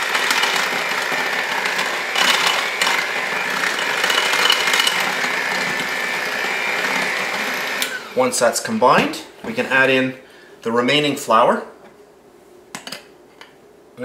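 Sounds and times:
electric hand mixer whirring: 0.0s - 8.4s.

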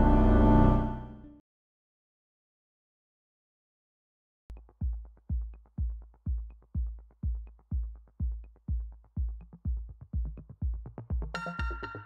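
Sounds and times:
electronic music: 0.0s - 1.3s, 11.0s - 12.0s
deep kick drum: 4.5s - 11.8s.

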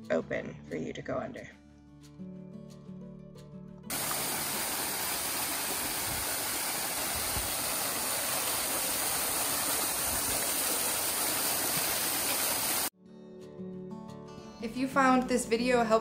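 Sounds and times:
waterfall rushing into pool: 3.9s - 12.9s.

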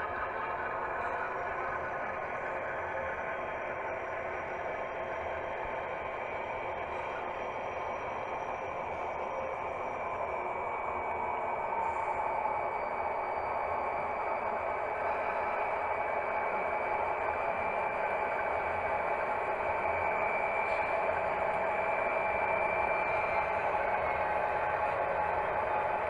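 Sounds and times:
model locomotive motor whine: 5.5s - 26.0s.

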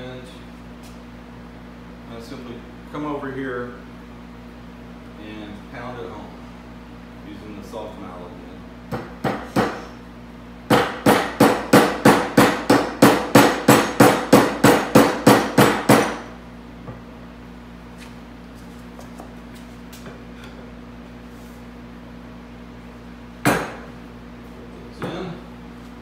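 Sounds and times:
rubber mallet striking wood: 10.7s - 16.2s.

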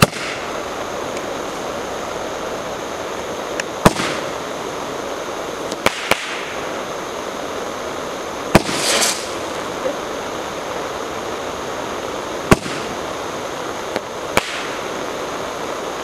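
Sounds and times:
firework pops: 0.0s - 0.5s, 3.5s - 4.4s, 5.7s - 6.6s, 8.5s - 9.7s, 12.5s - 13.0s, 13.9s - 14.8s
firework hissing: 0.0s - 16.0s.

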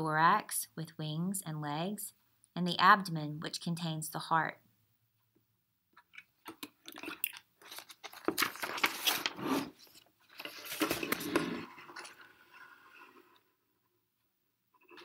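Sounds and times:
book pages turning: 6.1s - 13.3s.

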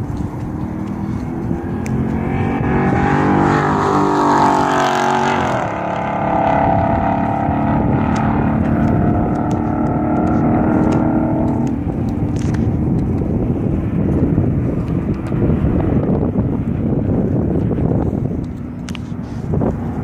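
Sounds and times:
car engine revving: 0.0s - 20.0s.

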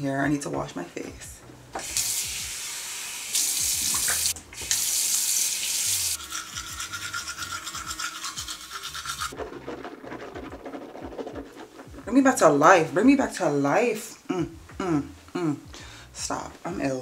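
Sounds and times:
water running from a tap: 1.8s - 9.4s
toothbrush scrubbing teeth: 6.0s - 9.4s.

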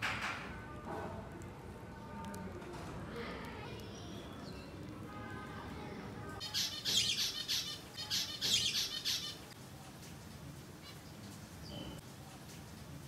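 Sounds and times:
faint background noise: 0.0s - 13.0s
birds chirping: 3.5s - 10.0s, 10.6s - 12.1s.

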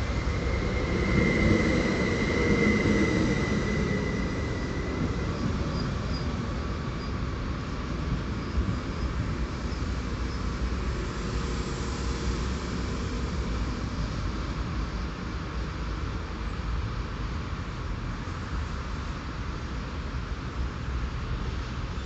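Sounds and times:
train rumbling to a stop: 0.0s - 22.0s.

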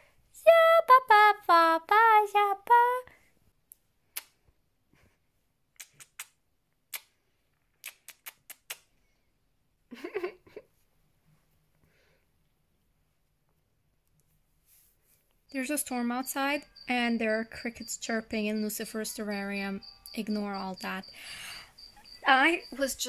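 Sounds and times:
woman singing in a high voice: 0.4s - 3.1s.

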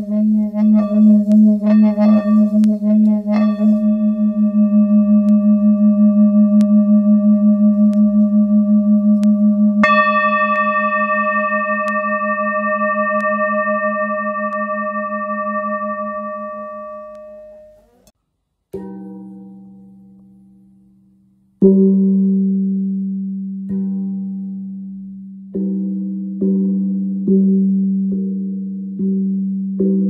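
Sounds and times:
singing bowls ringing: 0.0s - 18.0s.

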